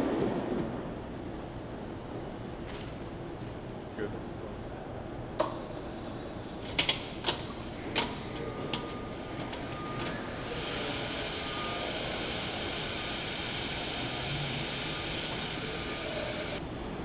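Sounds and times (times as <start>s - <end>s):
steady mechanical hiss: 5.3s - 16.6s.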